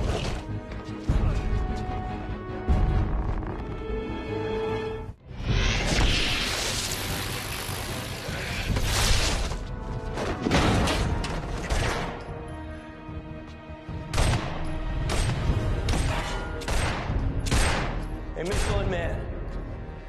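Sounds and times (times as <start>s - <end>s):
dramatic orchestral score: 0.0s - 7.2s, 7.9s - 20.0s
crackling electric blast: 5.5s - 9.6s.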